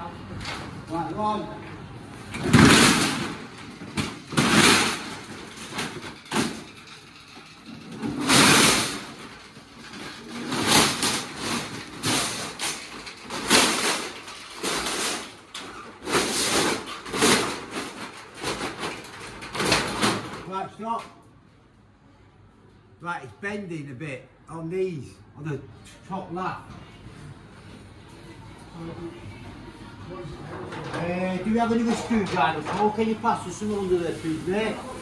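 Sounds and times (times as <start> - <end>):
metal roller shutter rattling: 2.3 - 20.6, 30.4 - 35.0.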